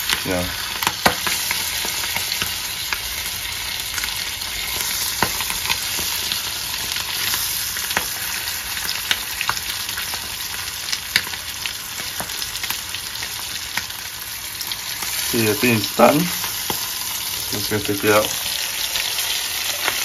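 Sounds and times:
sharp crackles and pops: 0.0s - 15.1s
butter sizzling in a frying pan: 0.0s - 20.0s.

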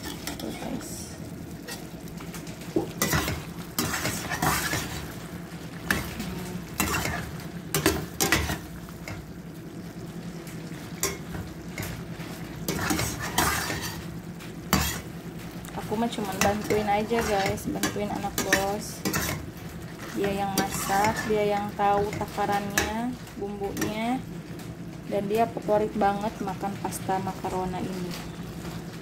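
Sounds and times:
sauce sizzling: 0.0s - 29.0s
metal spoon scraping a pan: 1.6s - 2.0s, 3.0s - 5.1s, 6.8s - 9.2s, 12.7s - 14.0s, 14.7s - 15.1s, 16.3s - 21.4s.

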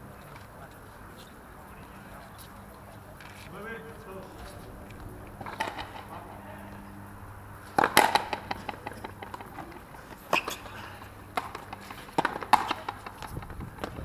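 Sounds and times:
low background hum: 0.0s - 14.0s
ball knocking on racket and wall: 7.8s - 9.6s, 11.4s - 14.0s.

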